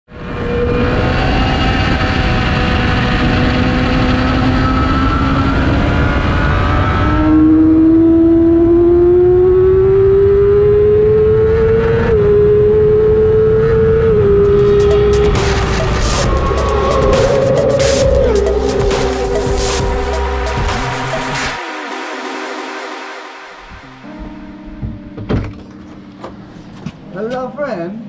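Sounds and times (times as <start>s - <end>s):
motorcycle engine at high revs: 0.2s - 16.4s.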